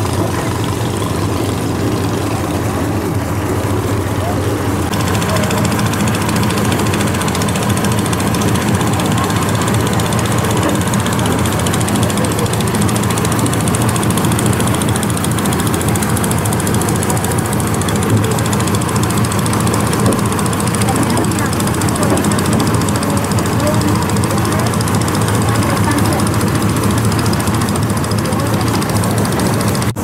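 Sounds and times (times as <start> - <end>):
boat engine knocking: 0.0 - 30.0.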